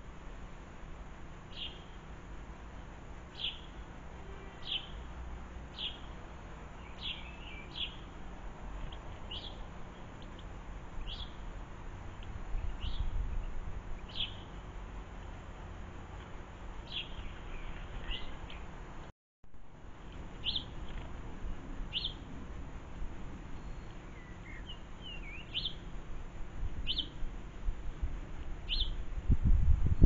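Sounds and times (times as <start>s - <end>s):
small bird chirping: 1.5s - 2.0s, 3.3s - 3.8s, 4.4s - 5.1s, 5.7s - 6.2s, 6.8s - 8.2s, 8.8s - 11.4s, 12.1s - 14.6s, 16.8s - 18.7s, 20.4s - 21.1s, 21.9s - 22.3s, 23.6s - 25.9s, 26.8s - 27.2s, 28.7s - 29.0s.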